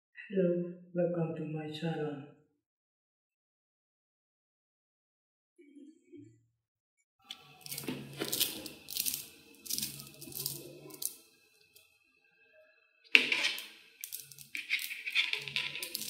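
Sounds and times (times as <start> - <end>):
magnetic balls clicking: 13.2 - 16.0.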